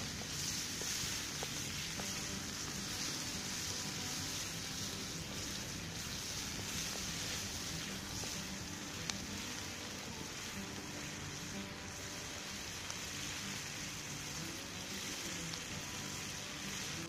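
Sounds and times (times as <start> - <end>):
food sizzling in a skillet: 0.0 - 17.0.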